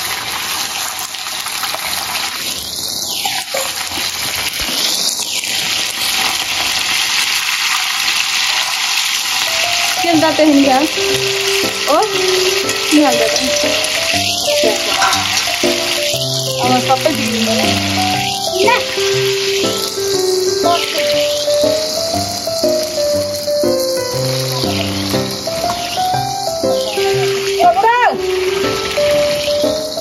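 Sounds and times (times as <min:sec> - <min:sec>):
meat deep-frying in oil: 0:00.0 - 0:30.0
background music: 0:09.5 - 0:30.0.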